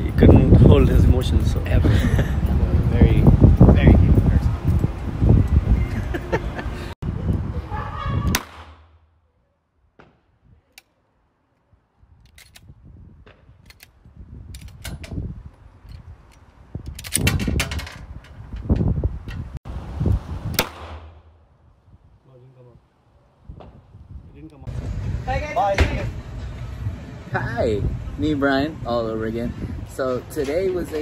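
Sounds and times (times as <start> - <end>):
people laughing: 1.8 - 2.4, 5.8 - 7.0
pistol shots: 8.3 - 9.0, 20.6 - 21.2.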